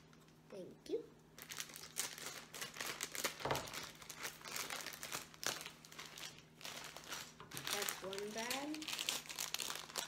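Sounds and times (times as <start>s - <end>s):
plastic bag crinkling: 1.4s - 10.0s.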